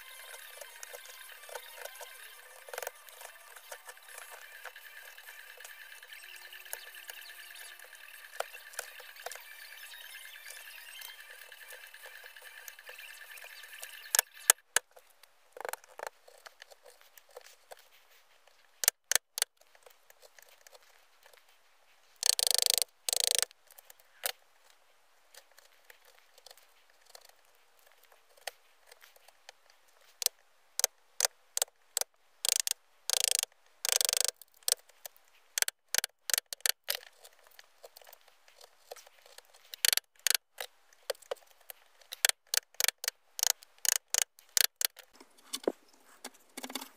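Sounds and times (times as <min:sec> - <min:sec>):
wood chisel cutting and scraping: 0:00.0 - 0:14.8, 0:42.1 - 0:46.9.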